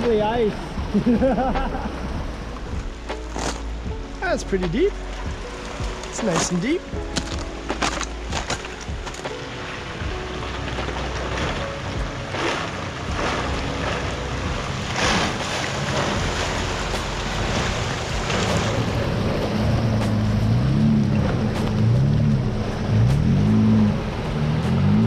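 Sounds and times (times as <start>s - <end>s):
water and slush splashing: 0.0s - 25.0s
truck engine revving: 10.8s - 25.0s.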